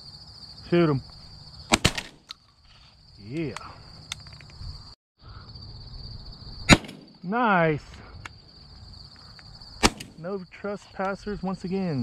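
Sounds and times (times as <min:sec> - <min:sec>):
high buzz of insects: 0:00.0 - 0:12.0
shotgun shots: 0:01.7 - 0:02.3, 0:06.7 - 0:07.2, 0:09.8 - 0:10.2.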